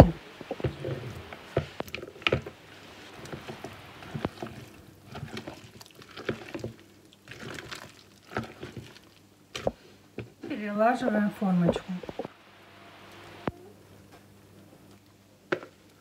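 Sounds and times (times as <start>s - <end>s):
spoon stirring thick batter: 0.5s - 10.4s.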